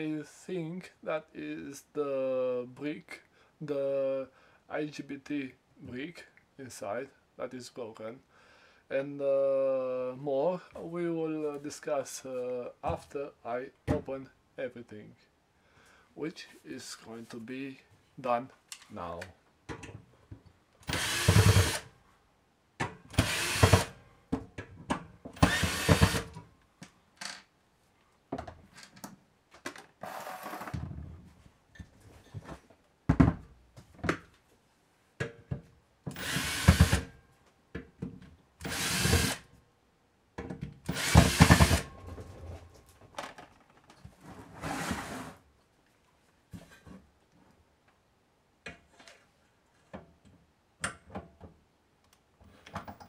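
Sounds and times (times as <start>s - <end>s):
electric drill-driver running: 20.9s - 21.8s, 23.2s - 23.9s, 25.4s - 26.3s, 36.2s - 37.1s, 38.6s - 39.4s, 40.9s - 41.9s.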